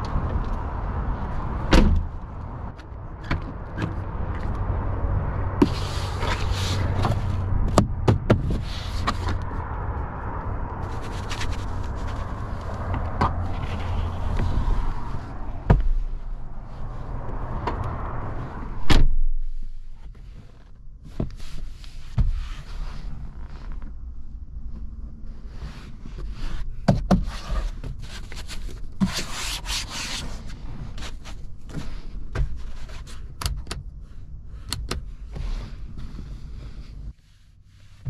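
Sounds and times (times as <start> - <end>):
steady low rumble: 0.0 - 26.8.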